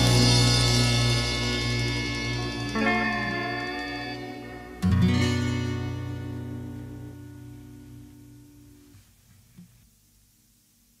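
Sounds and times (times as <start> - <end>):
acoustic guitar music: 0.0 - 9.8.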